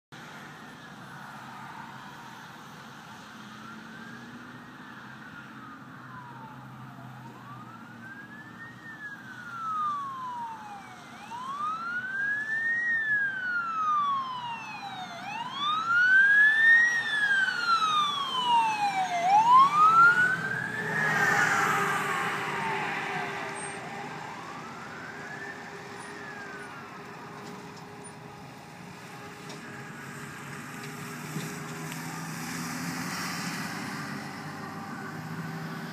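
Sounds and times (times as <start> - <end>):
diesel engine: 0.2 - 35.9
fire engine siren wailing: 0.2 - 35.9
passing tyres rushing: 9.0 - 28.1.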